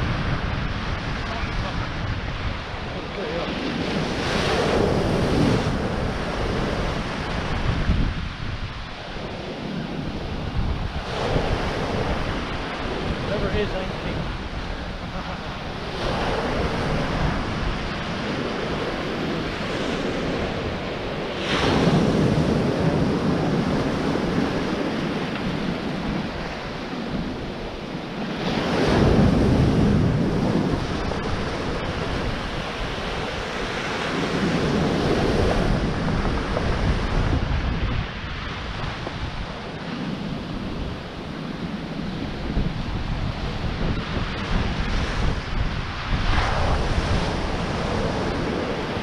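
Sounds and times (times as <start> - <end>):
waves washing up pebble beach: 0.0 - 49.0.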